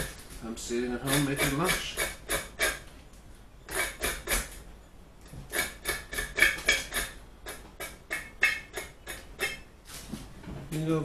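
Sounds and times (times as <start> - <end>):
knife scraping taro skin: 1.0 - 2.8, 3.7 - 4.6, 5.5 - 9.6.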